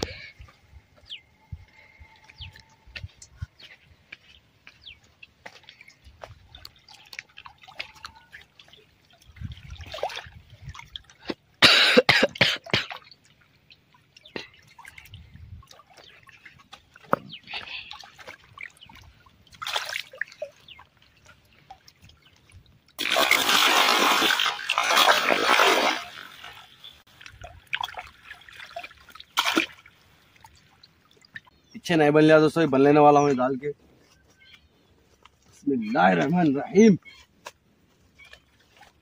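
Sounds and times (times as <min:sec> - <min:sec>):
small drips and knocks: 0:05.2 - 0:11.6, 0:12.3 - 0:23.0, 0:27.1 - 0:31.6
water splashing: 0:05.4 - 0:31.7.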